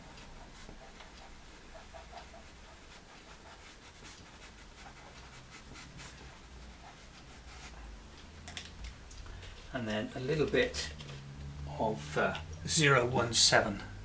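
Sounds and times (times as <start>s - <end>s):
pencil scratching on paper: 0.0s - 7.9s.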